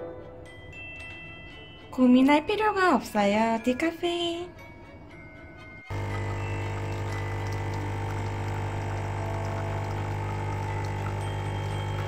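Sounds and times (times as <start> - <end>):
coffee machine pump buzzing: 5.9 - 12.0.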